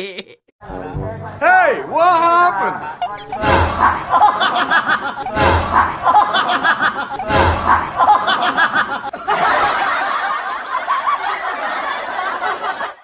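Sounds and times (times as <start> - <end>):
looped laughter: 2.8 - 13.0.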